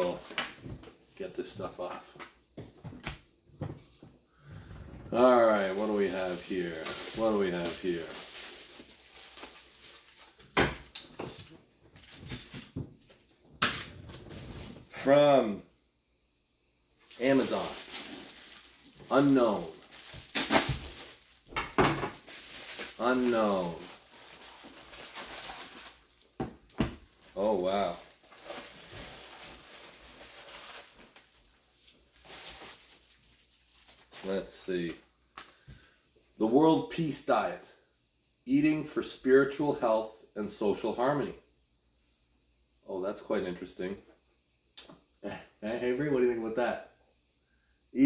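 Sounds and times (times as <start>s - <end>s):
package rustling and crackling: 5.6s - 14.9s, 17.0s - 34.3s.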